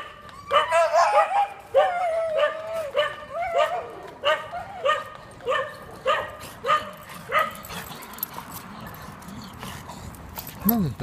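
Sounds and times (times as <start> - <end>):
small dog barking: 0.5 - 7.6.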